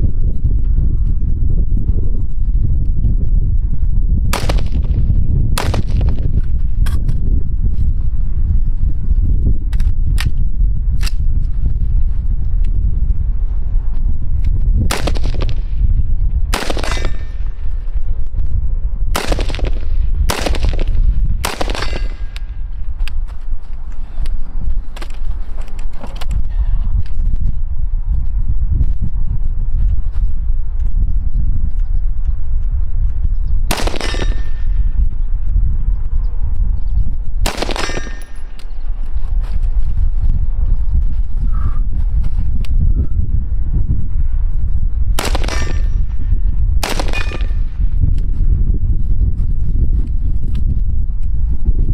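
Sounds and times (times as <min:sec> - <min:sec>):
steady low rumble: 0:00.0 - 0:51.9
rifle shots: 0:04.4 - 0:05.0, 0:05.6 - 0:06.2, 0:14.9 - 0:15.6, 0:16.5 - 0:17.4, 0:19.2 - 0:22.5, 0:33.7 - 0:34.6, 0:37.4 - 0:38.6, 0:45.2 - 0:46.0, 0:46.8 - 0:47.6.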